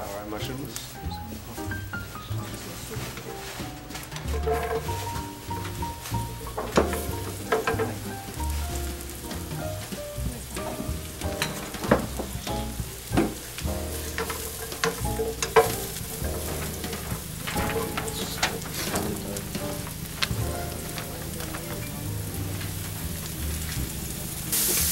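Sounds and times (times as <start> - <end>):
mushrooms sizzling in oil: 0.0 - 24.9
spatula scraping and knocking pan: 2.4 - 21.8.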